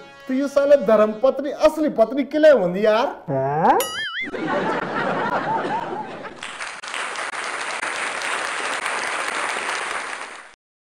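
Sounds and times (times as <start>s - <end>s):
canned applause: 6.4s - 10.6s.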